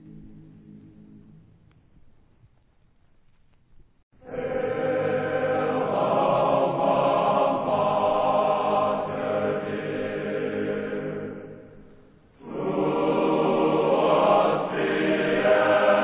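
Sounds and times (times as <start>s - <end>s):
choir singing held chords: 4.2s - 16.0s.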